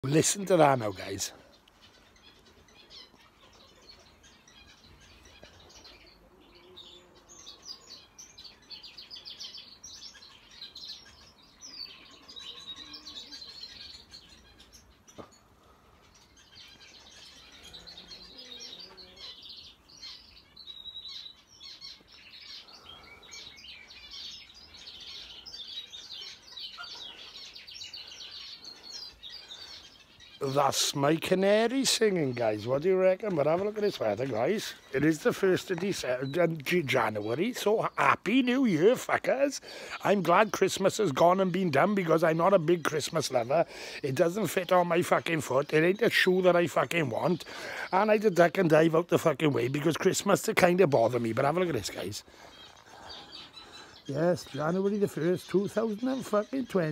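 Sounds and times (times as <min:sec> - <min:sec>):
canary singing trills: 0:00.0 - 0:56.9.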